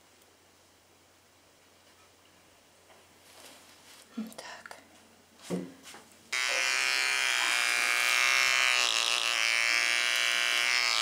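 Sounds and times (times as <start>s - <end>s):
electric hair clipper buzzing: 6.3s - 11.0s.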